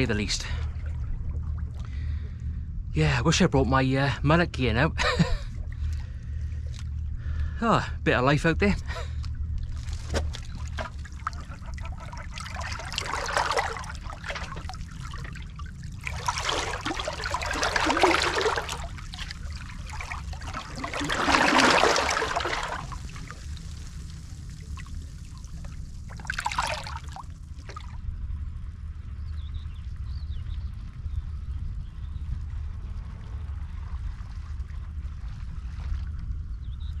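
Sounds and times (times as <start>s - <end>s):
steady low rumble: 0.0s - 37.0s
water lapping against rocks: 9.7s - 27.9s.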